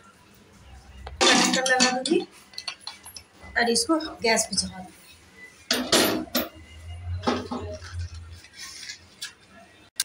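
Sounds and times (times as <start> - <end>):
metal pot scraping and knocking: 5.7 - 8.2.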